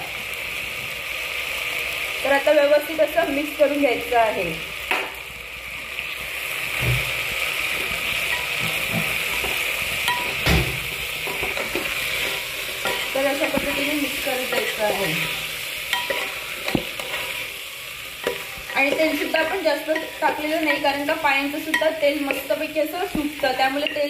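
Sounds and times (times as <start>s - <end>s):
meat frying in oil: 0.0s - 24.0s
spatula scraping a pot: 11.2s - 17.5s.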